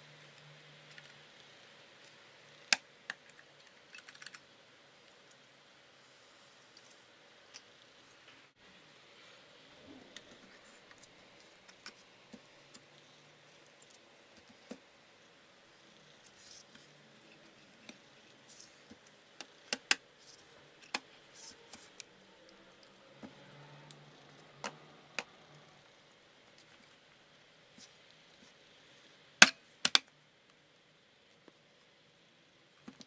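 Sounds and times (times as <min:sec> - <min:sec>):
plastic casing clicks and snaps: 0:29.4 - 0:30.1.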